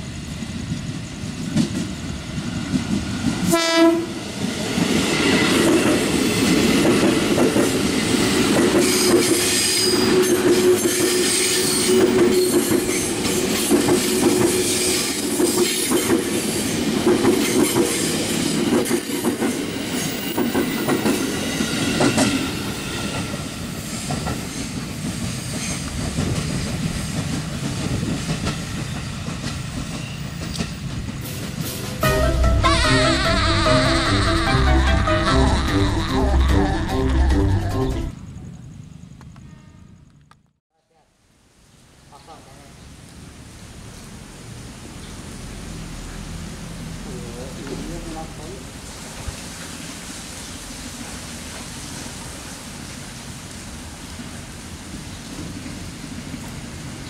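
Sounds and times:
electric train running past: 0:00.0 - 0:40.3, 0:43.4 - 0:57.0
train horn blast: 0:03.5 - 0:04.2, 0:32.0 - 0:38.1.

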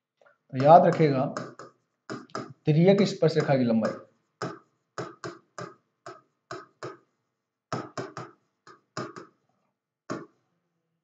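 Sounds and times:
pen tapping on board: 0:00.6 - 0:07.1, 0:07.7 - 0:09.4, 0:10.1 - 0:10.4.

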